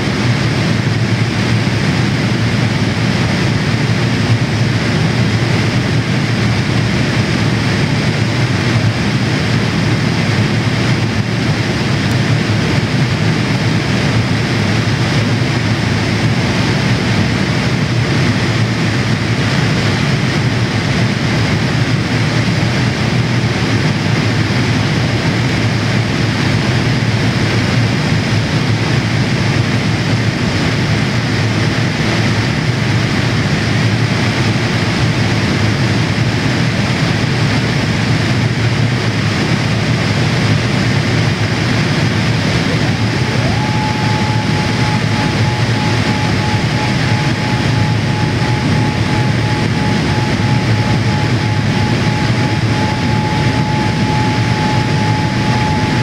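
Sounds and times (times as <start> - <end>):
aircraft cabin rushing noise: 40.3 - 56.0
faint rising whine: 40.8 - 56.0.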